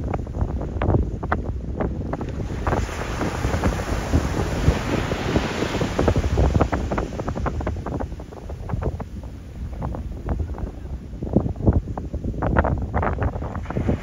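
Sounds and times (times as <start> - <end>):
wind buffeting microphone: 0.0 - 14.0
waves breaking on beach: 2.0 - 11.1, 13.2 - 14.0.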